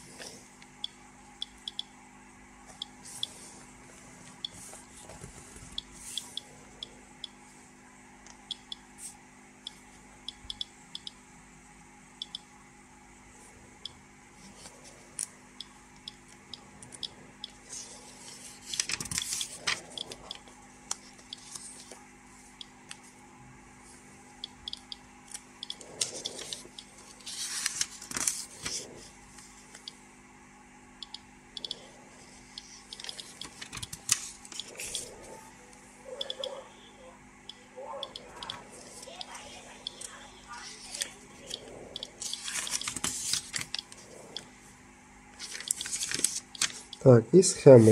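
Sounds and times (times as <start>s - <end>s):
paper pages rustling: 17.7s - 19.8s, 26.0s - 29.5s, 33.0s - 35.1s, 42.2s - 44.0s, 45.4s - 46.8s.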